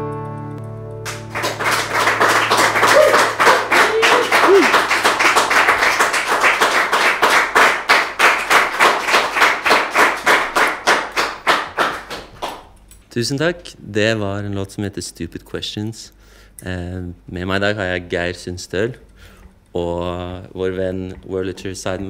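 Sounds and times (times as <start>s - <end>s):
small audience applauding: 1.0s - 12.8s.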